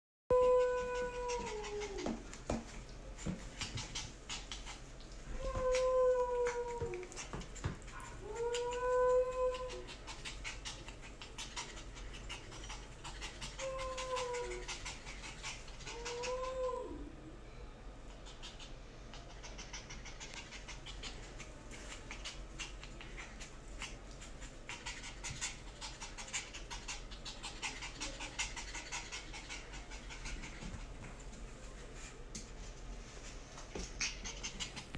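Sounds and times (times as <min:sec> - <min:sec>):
puppy whining: 0:00.3 - 0:02.3, 0:03.6 - 0:17.2, 0:33.8 - 0:34.9.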